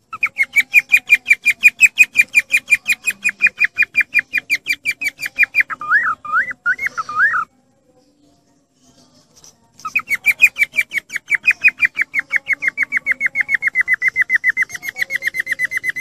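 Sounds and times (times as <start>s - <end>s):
cockatiel chirping: 0.1s - 7.5s, 9.8s - 16.0s.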